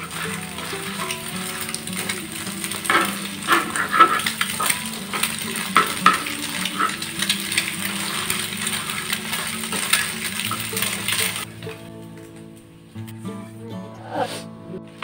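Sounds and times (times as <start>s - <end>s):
spatula scraping a pan: 0.0s - 11.5s
eggs sizzling in a frying pan: 0.0s - 12.6s.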